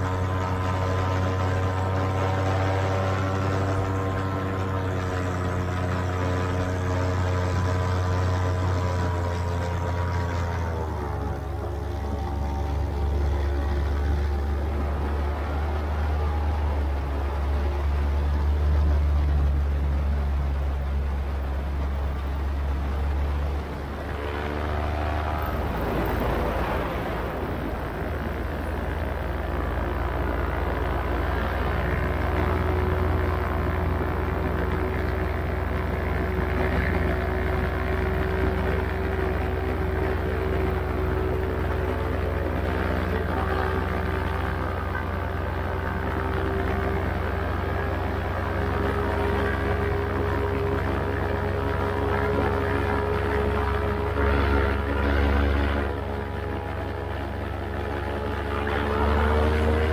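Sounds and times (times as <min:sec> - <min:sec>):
paramotor engine droning: 0:00.0 - 0:59.9
wind noise: 0:22.5 - 0:32.6.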